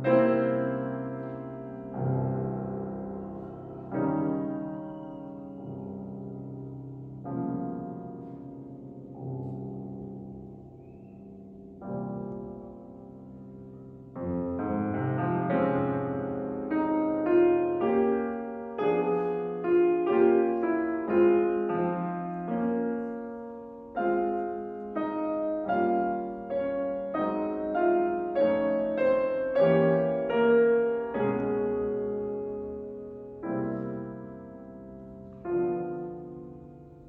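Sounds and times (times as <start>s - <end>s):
slow classical piano piece: 0.0s - 37.0s.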